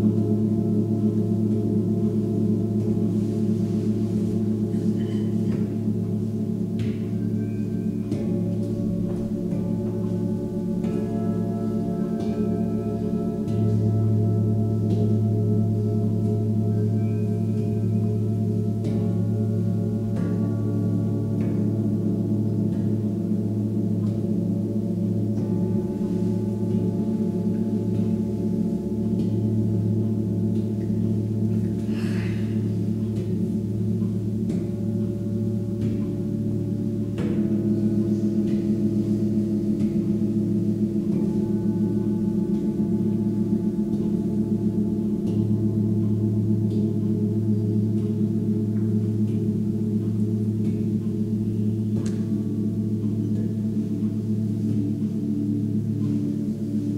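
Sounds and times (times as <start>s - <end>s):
singing bowls ringing: 0.0s - 56.9s.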